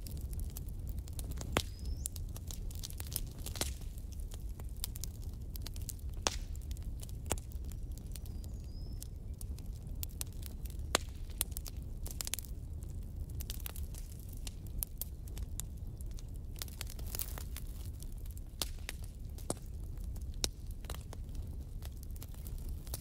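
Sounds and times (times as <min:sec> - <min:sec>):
wood fire crackling and popping: 0:00.0 - 0:23.0.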